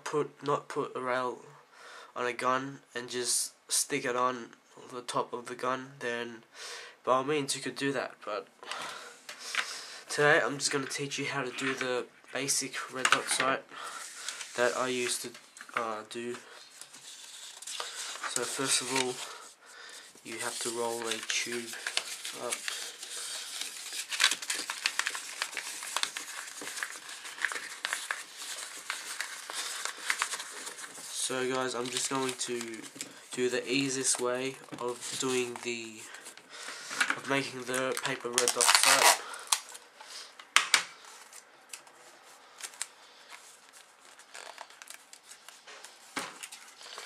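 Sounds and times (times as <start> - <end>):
paper crinkling: 10.6 - 11.9, 12.7 - 40.1, 41.0 - 47.0.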